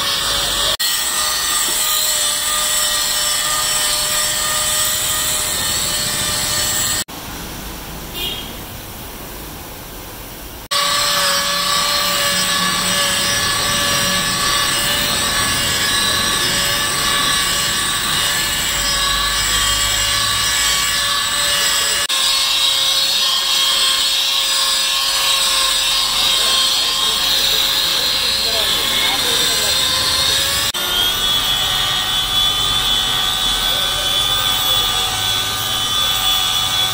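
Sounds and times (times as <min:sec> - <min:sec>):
electric polisher motor whine: 0:10.7 - 0:36.9.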